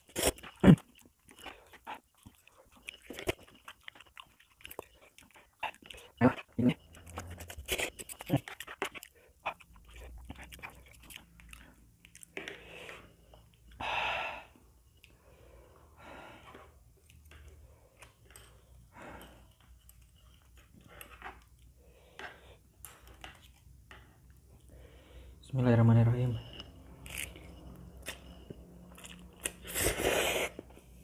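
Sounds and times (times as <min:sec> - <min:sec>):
chewing noodles: 0:00.0 - 0:13.8, 0:26.4 - 0:31.0.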